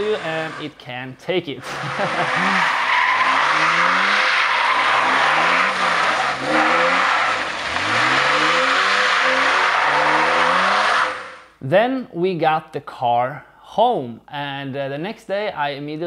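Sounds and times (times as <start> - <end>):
car engine revving: 0.0 - 0.8, 1.6 - 11.5.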